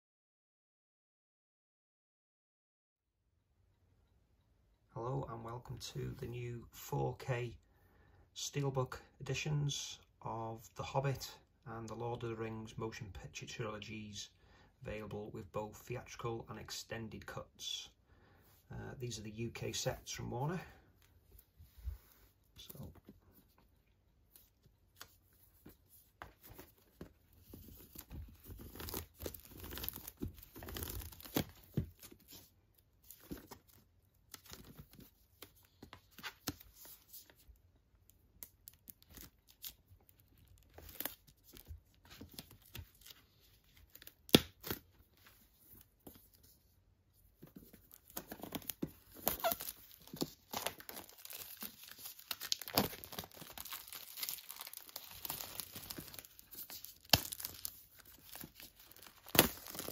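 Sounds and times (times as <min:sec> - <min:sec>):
plastic shrink wrap crinkling: 0:26.5 - 0:32.4, 0:47.5 - 0:59.9.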